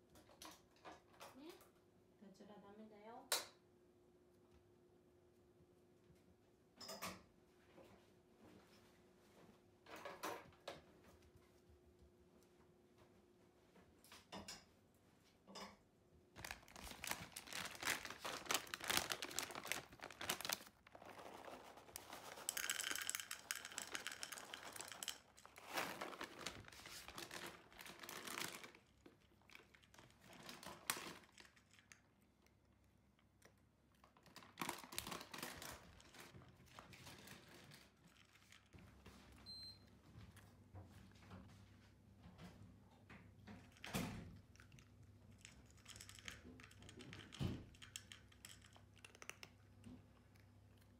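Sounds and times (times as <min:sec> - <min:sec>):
cat crunching dry kibble: 0:16.4 - 0:38.8, 0:43.6 - 0:50.9.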